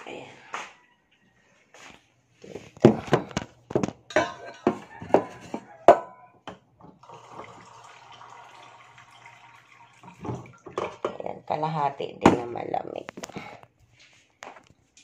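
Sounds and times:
water running into a mug: 0:06.9 - 0:11.1.

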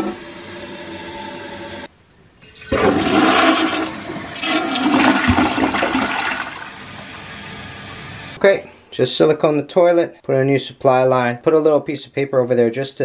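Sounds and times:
toilet flushing: 0:00.0 - 0:08.4.

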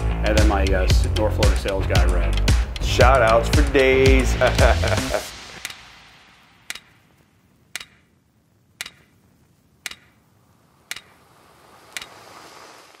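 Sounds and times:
faint hiss: 0:00.0 - 0:13.0
sharp ticks: 0:05.0 - 0:05.9, 0:06.6 - 0:10.3, 0:10.9 - 0:11.2, 0:11.9 - 0:12.2.

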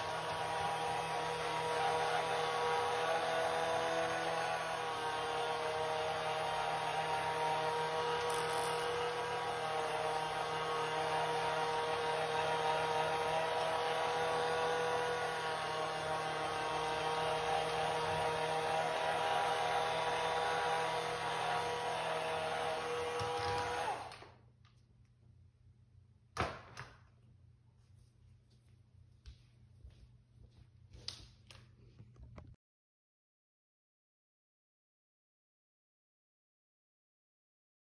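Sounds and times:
electric spin mop humming: 0:00.0 - 0:24.3.

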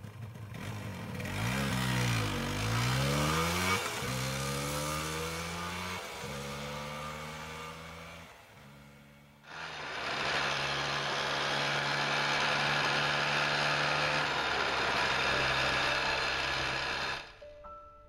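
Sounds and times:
two-stroke motorcycle engine running: 0:00.0 - 0:17.4
piano music: 0:15.2 - 0:18.0.

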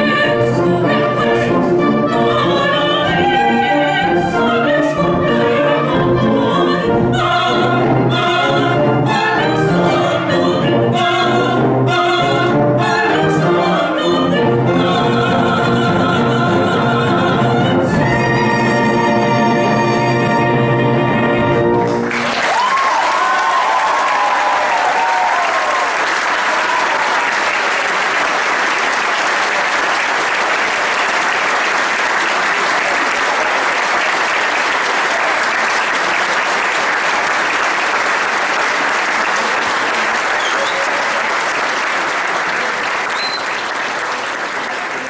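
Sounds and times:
wind band and singers chord: 0:00.0 - 0:22.2
audience applause: 0:21.7 - 0:45.0
audience cheering: 0:21.8 - 0:45.0.

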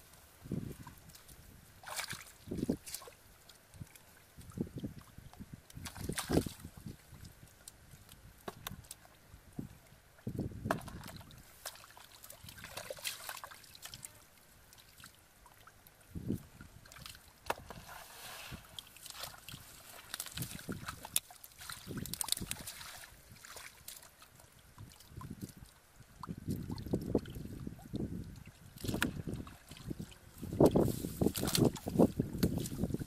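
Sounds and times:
hands splashing in water: 0:01.8 - 0:03.1.

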